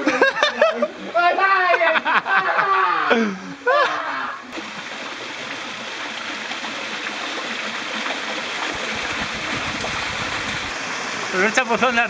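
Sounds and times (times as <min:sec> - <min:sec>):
stream water rushing: 0:04.4 - 0:12.0.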